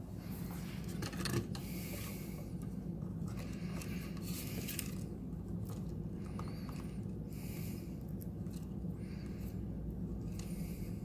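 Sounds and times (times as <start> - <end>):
hands rustling wires and plastic: 0.2 - 7.2.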